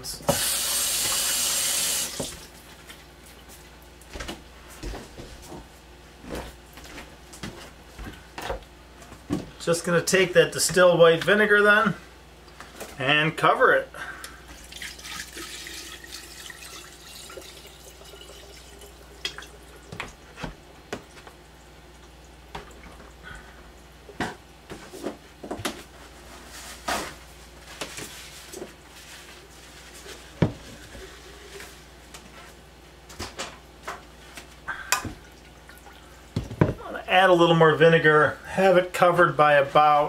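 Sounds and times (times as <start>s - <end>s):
liquid pouring into glass jar: 14.6s - 19.8s.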